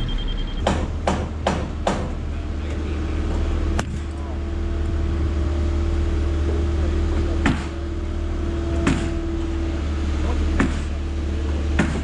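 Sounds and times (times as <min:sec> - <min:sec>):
steady whine: 0:00.0 - 0:01.6
excavator diesel engine running: 0:00.0 - 0:12.0.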